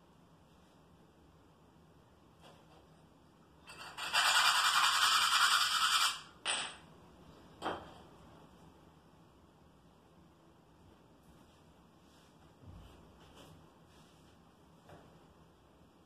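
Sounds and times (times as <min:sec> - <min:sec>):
tile scraping: 0:03.7 - 0:06.2
paper towel rustling: 0:11.2 - 0:14.6.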